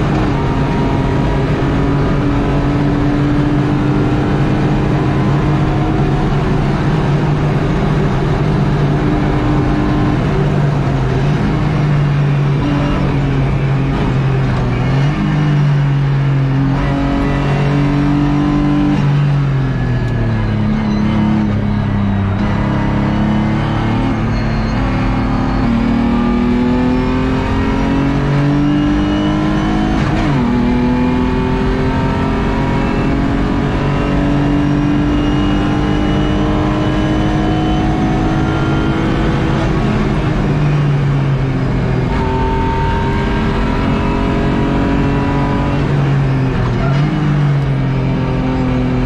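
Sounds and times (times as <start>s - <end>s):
race car engine accelerating: 0.0s - 49.0s.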